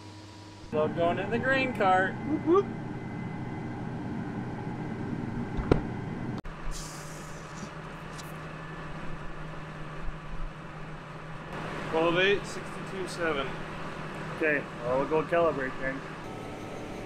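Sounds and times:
combine harvester running: 0:00.1 - 0:17.0
low engine hum: 0:00.1 - 0:17.0
brief hiss: 0:06.7 - 0:08.3.

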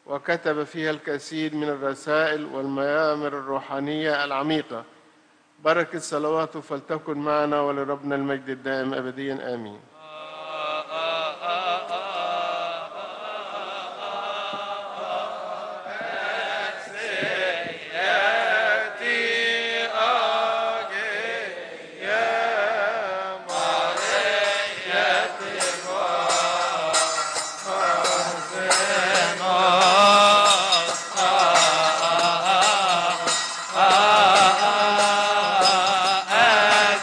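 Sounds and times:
men chanting a hymn in unison: 0:10.0 - 0:37.0
steady beat of sharp strikes: 0:23.5 - 0:37.0.

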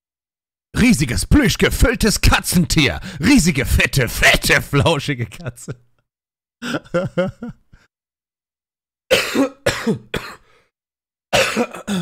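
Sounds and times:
man laughing: 0:04.2 - 0:06.0, 0:06.6 - 0:07.9
coughing laughs: 0:06.6 - 0:07.6.

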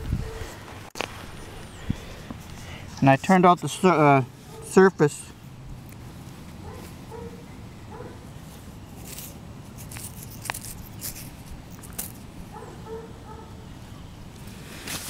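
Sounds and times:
fingers rustling in dirt: 0:05.8 - 0:07.4, 0:08.0 - 0:12.7, 0:14.4 - 0:15.0.

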